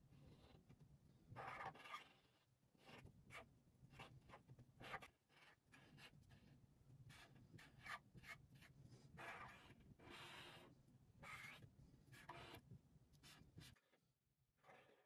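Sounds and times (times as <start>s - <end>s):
marker pen scratching on paper: 2.8s - 6.3s, 7.1s - 13.9s.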